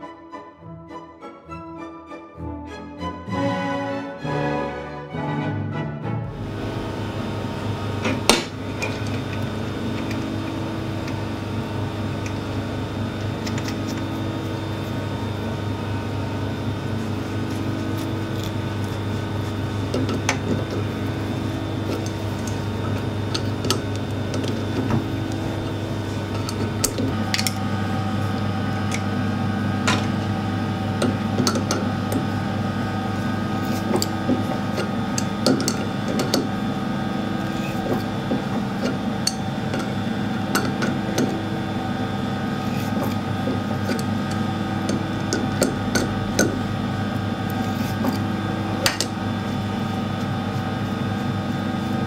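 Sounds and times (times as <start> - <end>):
machine hum: 2.7 - 52.0.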